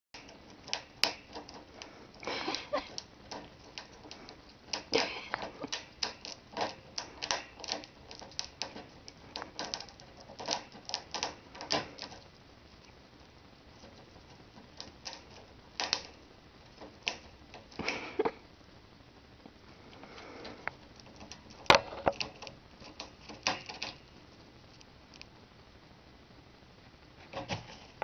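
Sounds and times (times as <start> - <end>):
claws clicking on wire bars: 0.2 - 12.3, 13.8 - 17.9, 20.4 - 25.3
wire cage rattling: 0.2 - 12.3, 20.9 - 24.1.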